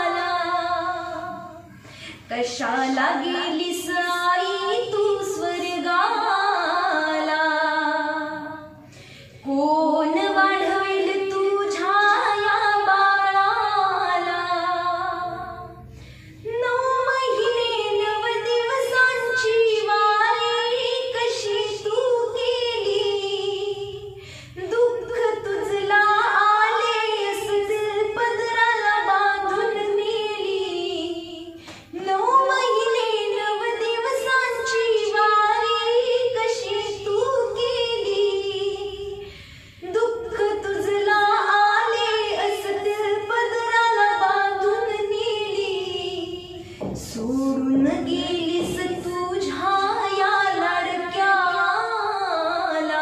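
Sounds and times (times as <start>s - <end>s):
woman singing: 0.0s - 8.8s, 9.4s - 15.8s, 16.4s - 53.0s
singer breathing: 1.6s - 2.3s, 8.8s - 9.5s, 15.8s - 16.5s, 24.2s - 24.6s, 31.5s - 32.0s, 39.2s - 39.8s, 46.6s - 46.9s.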